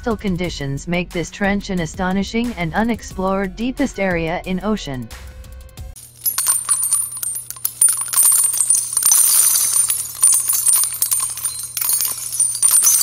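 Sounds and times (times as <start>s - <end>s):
low steady hum: 6.0s - 13.0s
small bright clicks and jingles: 6.0s - 13.0s.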